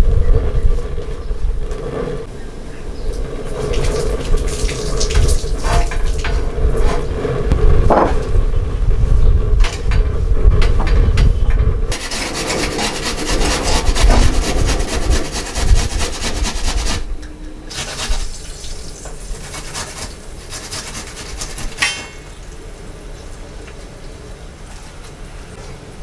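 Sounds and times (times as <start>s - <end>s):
low thumps and handling noise: 5.0s - 18.3s
vegetable grated on metal grater: 11.9s - 17.1s, 17.7s - 18.4s, 19.3s - 21.9s.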